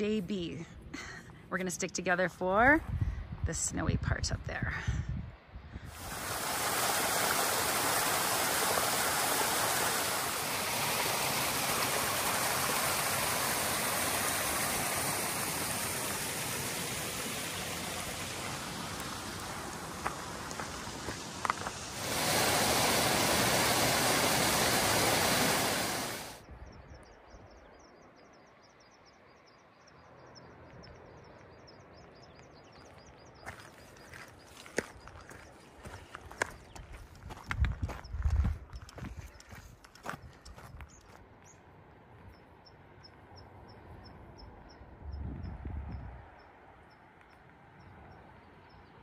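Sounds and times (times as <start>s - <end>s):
mountain stream rushing: 5.9s - 26.4s.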